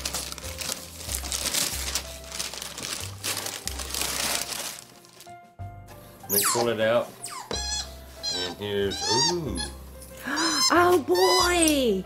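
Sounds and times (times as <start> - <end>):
wrapping paper tearing and crinkling: 0.0 - 5.4.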